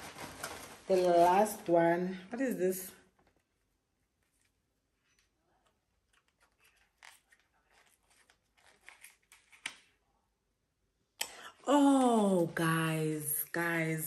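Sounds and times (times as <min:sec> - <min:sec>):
packaging rustling and clicking: 0:06.0 - 0:10.0.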